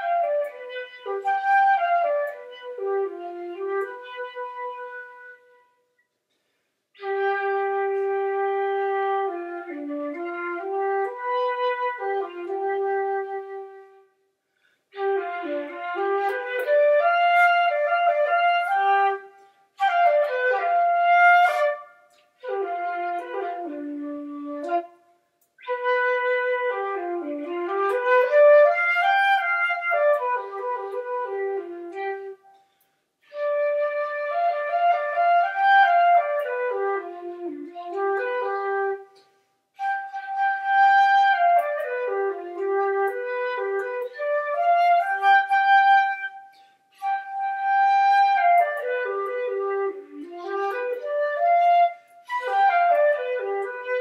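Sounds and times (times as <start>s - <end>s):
flute melody: 0.0s - 6.0s, 7.0s - 54.0s.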